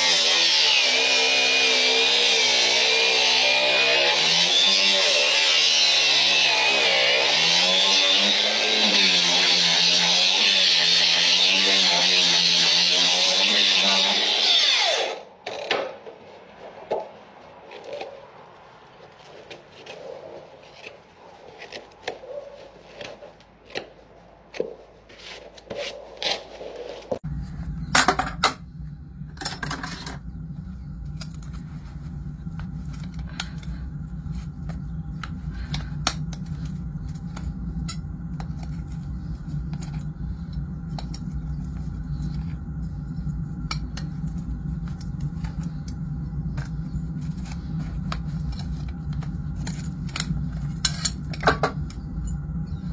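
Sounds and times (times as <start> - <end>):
steady low hum: 0.0 - 52.9
knife scraping hoof: 19.0 - 27.3
metal tool scraping: 43.6 - 52.4.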